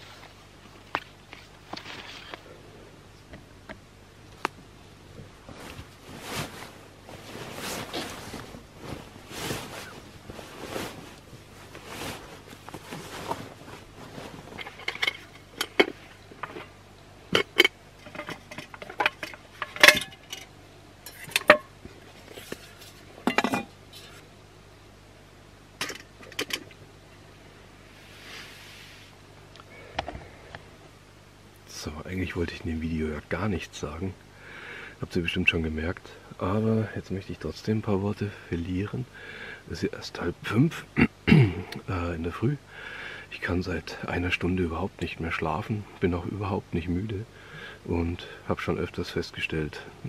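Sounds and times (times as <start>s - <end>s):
rustling of packs and clothing: 5.2s - 16.8s.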